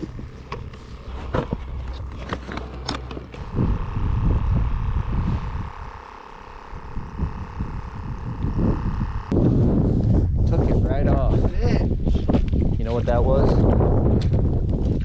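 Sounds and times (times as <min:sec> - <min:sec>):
wind buffeting microphone: 0:03.3 - 0:15.0.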